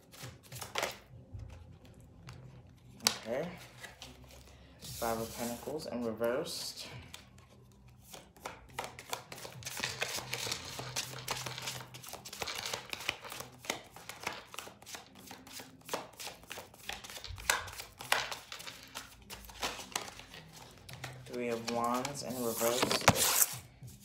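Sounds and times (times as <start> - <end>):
cards shuffled by hand: 0.0 - 1.6, 7.1 - 24.0.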